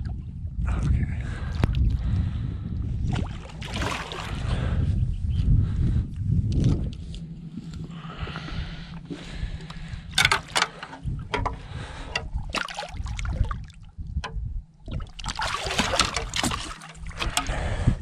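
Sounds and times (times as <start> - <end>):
fish thrashing in water: 3.1 - 4.5, 10.1 - 13.9, 14.8 - 17.8
water splashing: 3.1 - 4.5, 12.4 - 13.9, 14.8 - 17.6.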